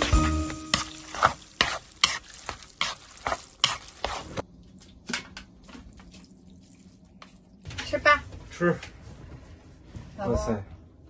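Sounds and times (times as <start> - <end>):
noodles stirred in a bowl: 0.7 - 4.4.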